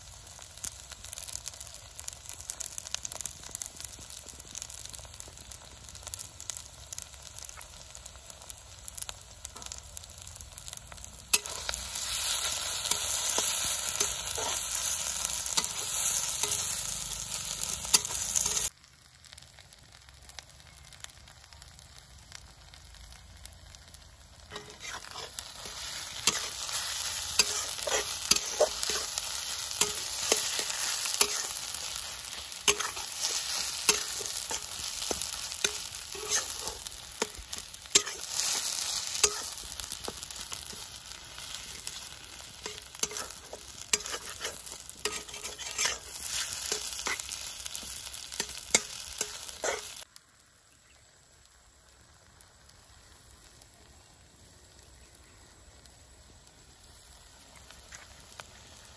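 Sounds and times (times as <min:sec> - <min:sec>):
meat sizzling in a pan: 0:00.0 - 0:58.9
metal spatula scraping a pan: 0:11.3 - 0:18.7, 0:24.5 - 0:40.8, 0:41.4 - 0:50.0.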